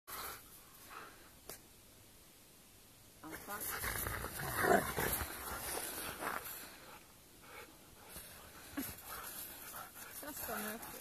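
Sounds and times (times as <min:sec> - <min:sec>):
dogs scuffling in snow: 0:03.2 - 0:07.0, 0:08.0 - 0:11.0.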